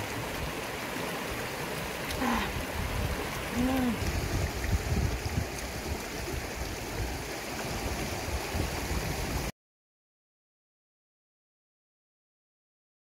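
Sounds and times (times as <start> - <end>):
river rushing over stones: 0.0 - 9.5.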